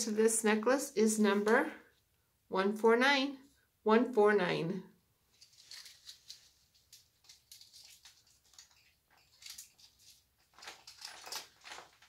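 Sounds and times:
packaging rustling: 5.3 - 12.0.

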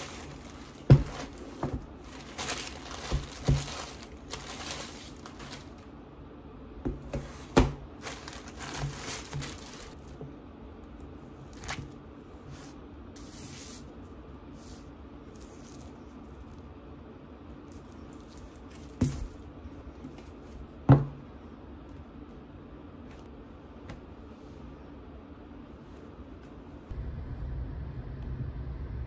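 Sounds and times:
plastic bags crinkling: 0.0 - 5.8, 7.1 - 10.1, 11.5 - 12.0
parcels knocking on table: 0.8 - 1.9, 20.9 - 21.2.

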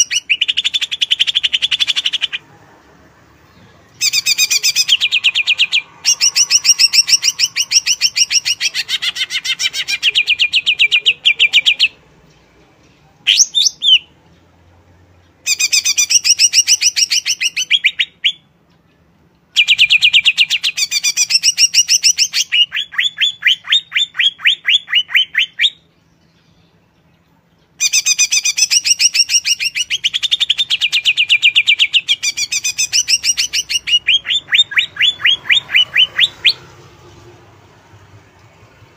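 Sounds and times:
bird whistle: 19.6 - 25.8, 27.8 - 36.6.

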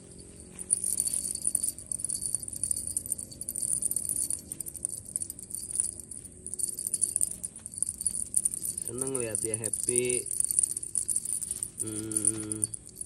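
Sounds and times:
small bell jingling: 0.0 - 13.0.

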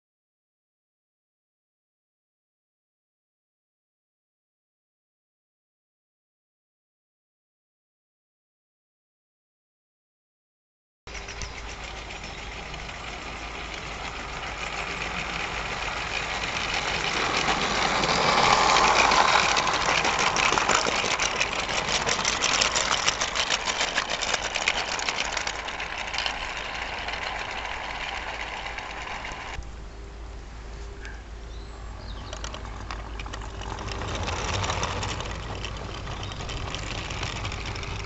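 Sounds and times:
model locomotive drive running: 11.1 - 29.6, 31.9 - 38.0
wheels clicking over track: 11.1 - 29.8, 31.5 - 38.0.

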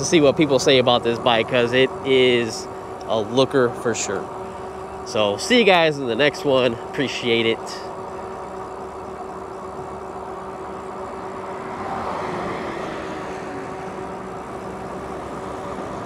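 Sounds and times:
electric motor hum: 0.0 - 16.0
car passing by: 11.3 - 14.2.

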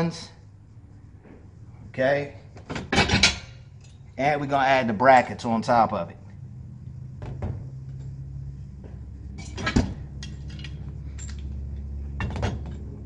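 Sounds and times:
steady low hum: 0.0 - 13.0
metal brackets clanking: 2.6 - 4.0, 9.3 - 13.0.

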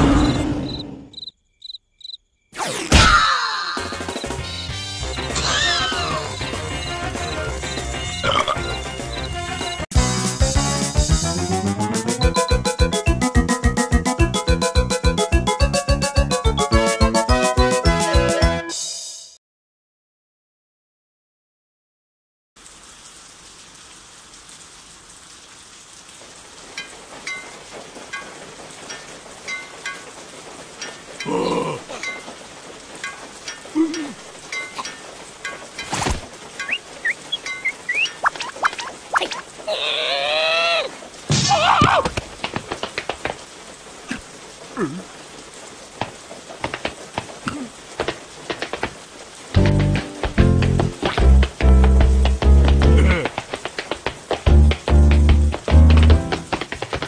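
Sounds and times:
rain hiss: 3.8 - 18.2, 22.6 - 57.0
squeaky cartoon voices: 5.4 - 6.5.

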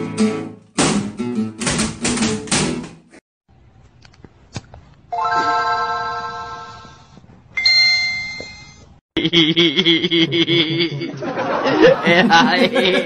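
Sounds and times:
doorbell-like chimes: 5.2 - 6.9, 7.6 - 8.8.

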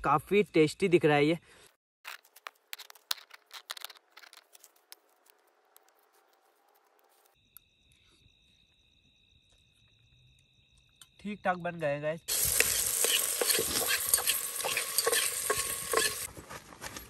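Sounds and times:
dry twigs rustling: 2.1 - 7.4
crickets chirring: 7.0 - 16.3.

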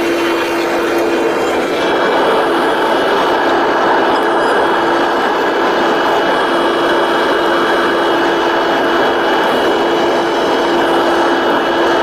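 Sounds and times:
rushing airflow: 0.0 - 12.0
turboprop engines droning: 0.0 - 12.0.

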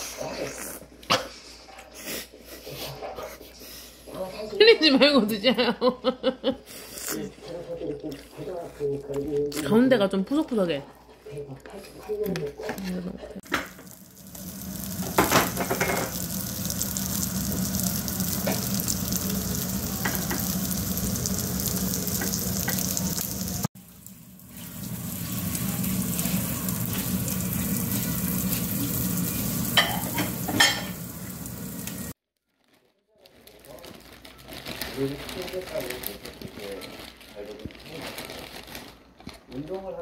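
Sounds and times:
ham sizzling in oil: 13.4 - 32.2.

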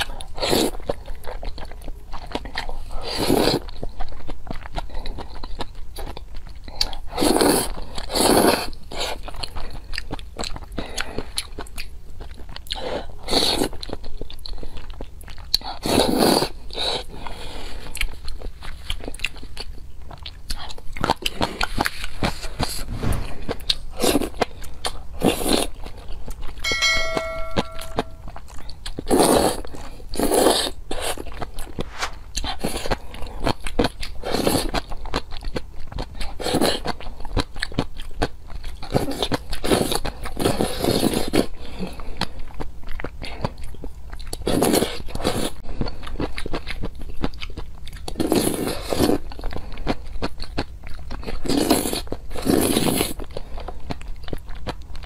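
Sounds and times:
noodles slurped and chewed: 0.0 - 26.6, 28.6 - 55.0
short steady tone: 26.6 - 28.3.

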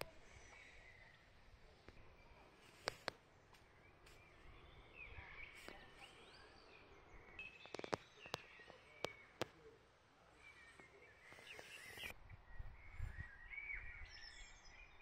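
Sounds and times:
distant birds chirping: 0.0 - 15.0
sharp clicks: 7.6 - 9.6.

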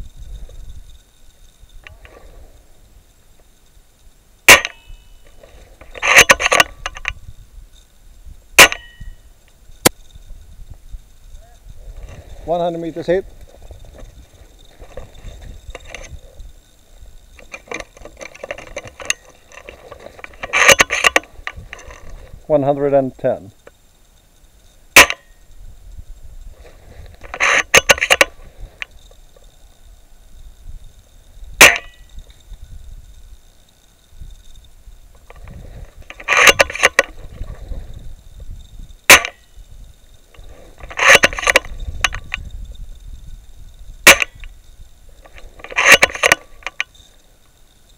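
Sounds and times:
sharp airsoft rifle shot: 4.5 - 5.0, 8.6 - 9.1, 25.0 - 25.3, 31.6 - 32.0
rustling and rubbing: 5.3 - 6.6, 11.8 - 16.5, 17.4 - 22.5, 26.4 - 29.2, 35.2 - 38.1, 40.3 - 42.0
camera handling noise: 5.4 - 7.2, 17.4 - 22.2, 26.6 - 28.9, 35.2 - 37.6, 40.4 - 42.4, 45.3 - 46.9
footsteps: 11.9 - 16.2
rifle bolt clicking: 17.4 - 21.2, 36.1 - 37.1, 40.8 - 42.4, 45.6 - 46.8.

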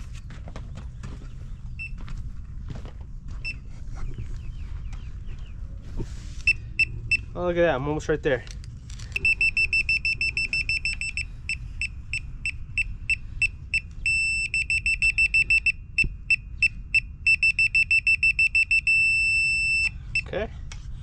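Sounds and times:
laser detector beeping: 9.2 - 20.3.

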